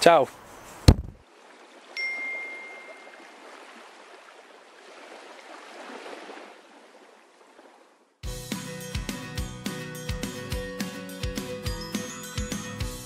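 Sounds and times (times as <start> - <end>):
soft wash of water: 1.2 - 8.2
chime tone: 2.0 - 3.2, 11.7 - 12.9.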